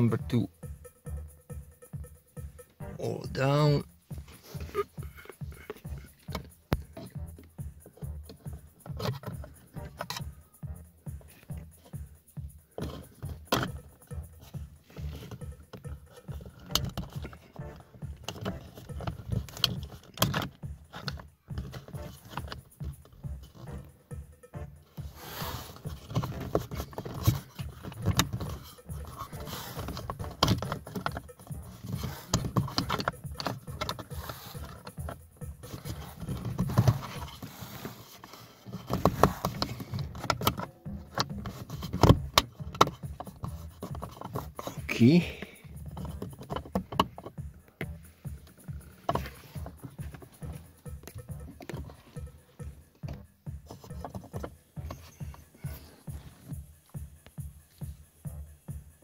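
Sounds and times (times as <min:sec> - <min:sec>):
dull handling bumps: 0:00.0 - 0:59.0
plastic cover clicking and rattling: 0:08.2 - 0:10.3, 0:12.8 - 0:23.7, 0:25.7 - 0:44.8, 0:45.7 - 0:52.3, 0:53.0 - 0:55.8.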